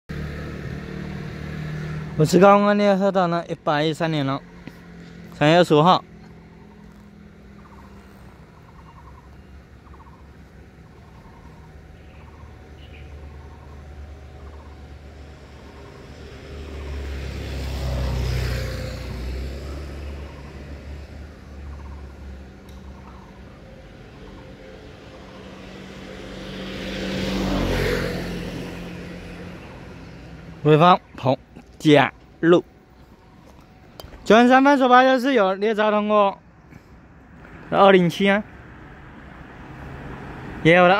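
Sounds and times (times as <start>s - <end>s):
vehicle passing by: 0.1s - 40.9s
small animal trilling calls: 6.2s - 14.9s, 21.6s - 22.2s, 22.8s - 23.5s.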